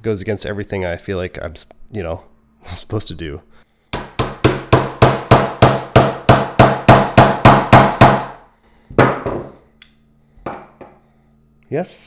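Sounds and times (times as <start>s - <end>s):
hammer striking steel chisel: 3.9s - 8.4s.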